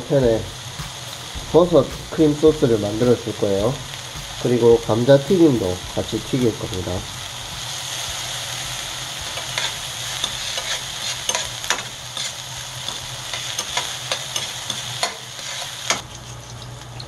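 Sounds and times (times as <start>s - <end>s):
vegetables sizzling in frying pan: 0.0s - 17.0s
metal tongs scraping pan: 9.2s - 16.0s.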